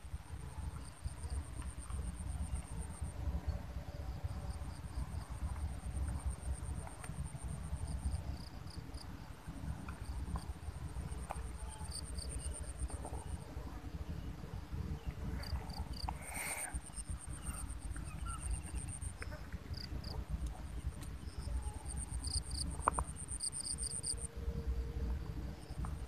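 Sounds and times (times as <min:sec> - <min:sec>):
low rumble on microphone: 0:00.0 - 0:26.0
insects trilling: 0:15.0 - 0:24.3.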